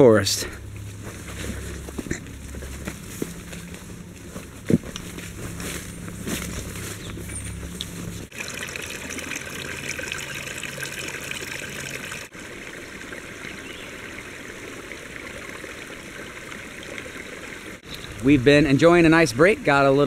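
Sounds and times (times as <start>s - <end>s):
creek water babbling over rocks: 8.3s - 17.9s.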